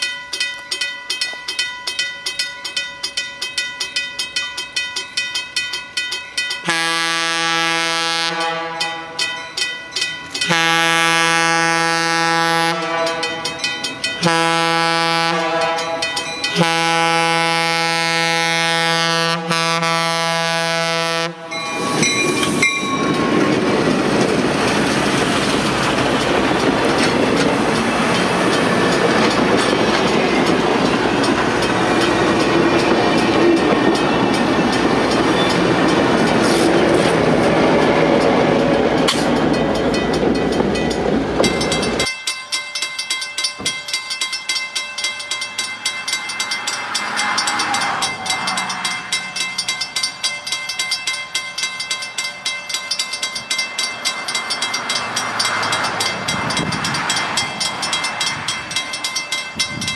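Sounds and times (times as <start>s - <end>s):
train rumbling past: 1.5s - 42.1s, 45.0s - 59.9s
train air horn blasts: 6.7s - 9.2s, 10.5s - 13.6s, 14.2s - 22.1s
wheels clattering over rails: 22.0s - 42.1s.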